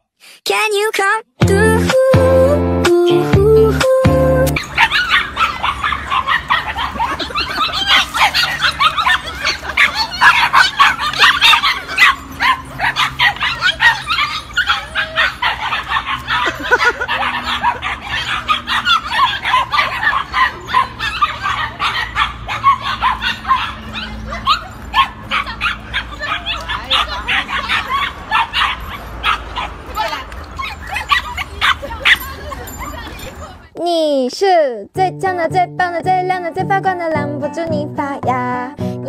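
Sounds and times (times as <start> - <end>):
puppies whimpering: 4.6 - 33.7
puppies yapping: 4.6 - 33.7.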